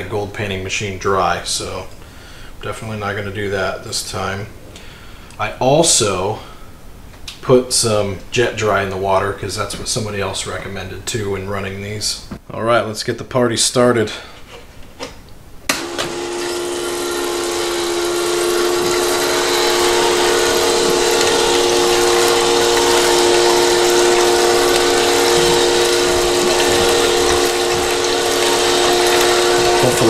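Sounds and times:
motor and pump hum: 15.7s - 30.0s
water spraying and draining: 15.8s - 30.0s.

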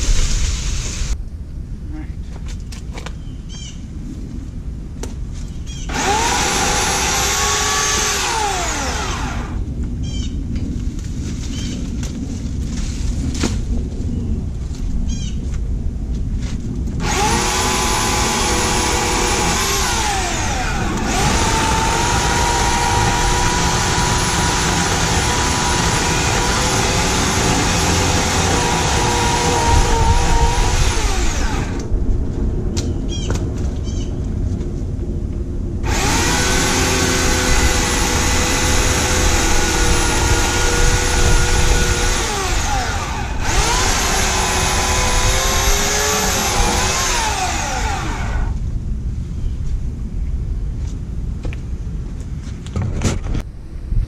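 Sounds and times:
electric chainsaw motor whine: 5.9s - 9.7s, 17.0s - 31.9s, 35.8s - 48.6s.

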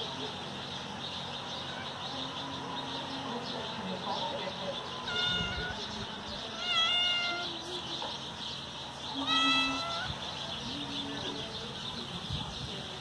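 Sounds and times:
cat meowing: 5.0s - 5.8s, 6.6s - 7.5s, 9.2s - 10.2s.

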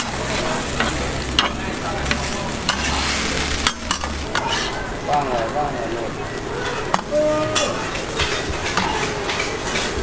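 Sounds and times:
pancake sizzling on a griddle: 0.0s - 10.0s
metal spatula scraping and tapping: 0.4s - 4.8s, 6.6s - 10.0s.

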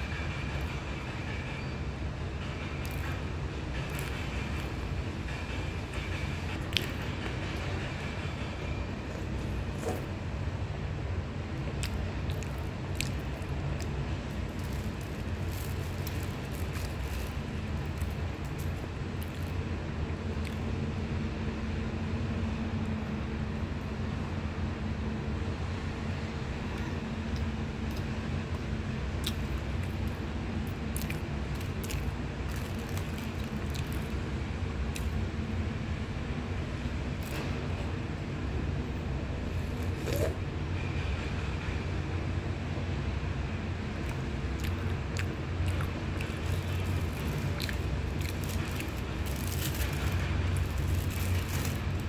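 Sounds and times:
steady low hum: 0.0s - 52.0s
steady low rumble: 0.0s - 52.0s
pastry crackling: 11.8s - 19.5s, 44.6s - 52.0s
plastic bag crinkling: 14.2s - 19.5s, 31.6s - 34.1s, 46.0s - 52.0s.

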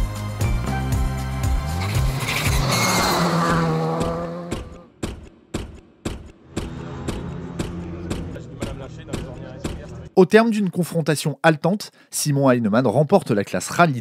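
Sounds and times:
background music with steady beat: 0.0s - 3.1s
rally car engine running hard: 1.6s - 4.8s.

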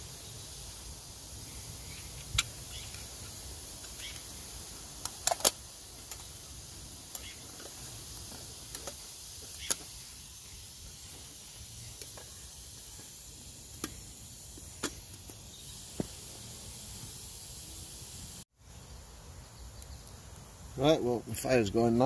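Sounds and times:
campfire crackling and popping: 2.1s - 16.3s.

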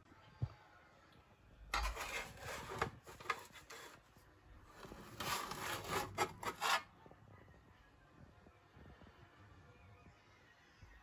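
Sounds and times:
metal spatula scraping baking tray: 1.8s - 4.0s, 4.8s - 6.9s.

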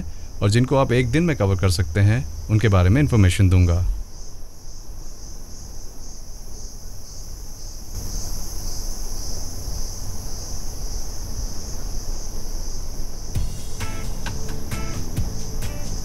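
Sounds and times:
vehicle low rumble: 0.0s - 4.1s
forest insects droning: 0.0s - 16.0s.

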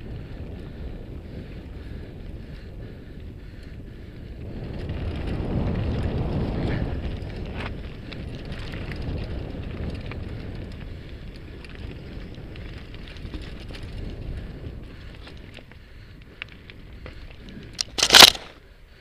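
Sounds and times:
stones and bike rattling: 0.0s - 19.0s
wind rumble on microphone: 0.0s - 19.0s
tyres on loose gravel: 4.4s - 18.8s.

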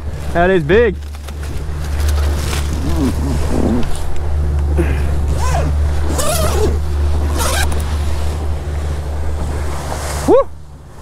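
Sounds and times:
boat engine drone: 0.0s - 11.0s
man whooping: 10.2s - 10.6s.

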